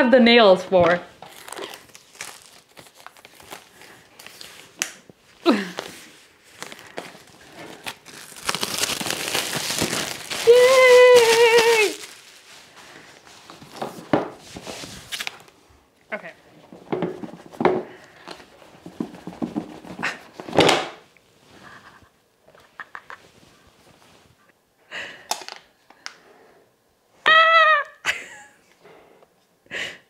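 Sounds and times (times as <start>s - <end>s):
plastic wrap crinkling and tearing: 1.1s - 15.6s.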